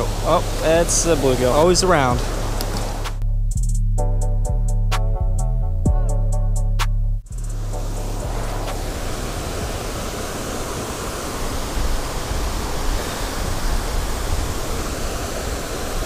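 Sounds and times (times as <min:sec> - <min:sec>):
water rushing over dam: 0:00.0 - 0:03.2, 0:07.6 - 0:16.0
low rumble: 0:07.0 - 0:10.3.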